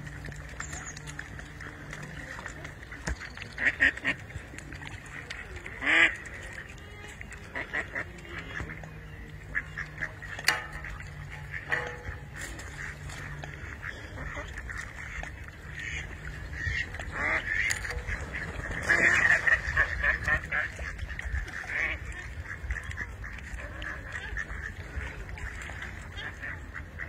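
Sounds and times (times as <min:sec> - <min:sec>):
ducks quacking: 0:00.0 - 0:27.0.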